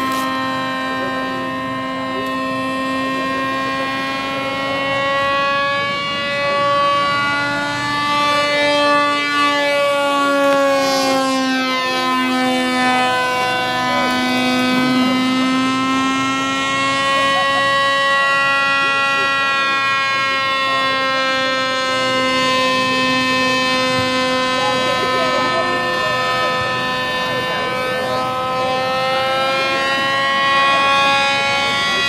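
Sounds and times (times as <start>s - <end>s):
small propeller motor buzzing: 0.0s - 32.0s.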